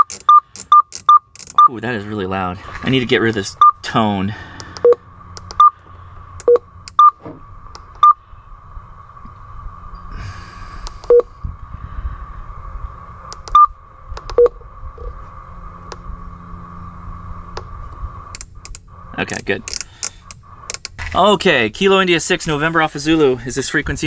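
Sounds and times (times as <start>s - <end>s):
radio keypad beeps: 3.6s - 3.8s, 4.8s - 5.0s, 5.6s - 5.8s, 6.4s - 7.2s, 8.0s - 8.2s, 13.5s - 13.8s.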